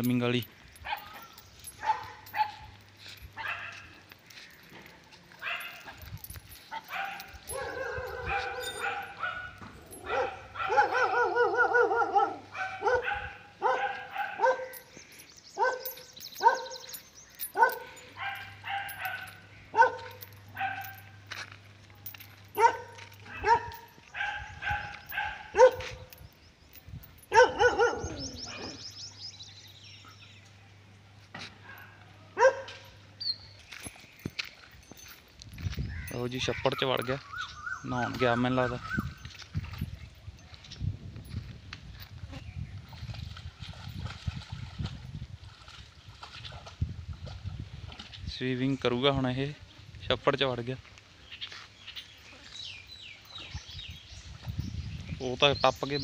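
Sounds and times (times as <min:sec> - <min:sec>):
dog barking: 0:00.8 - 0:02.7, 0:03.4 - 0:03.9, 0:05.4 - 0:06.0, 0:06.7 - 0:14.9, 0:15.6 - 0:16.8, 0:17.5 - 0:21.2, 0:22.6 - 0:26.1, 0:27.3 - 0:28.8, 0:31.6 - 0:32.9
dog yelping: 0:06.7 - 0:14.8, 0:16.4 - 0:16.8, 0:22.6 - 0:25.8, 0:27.3 - 0:28.8.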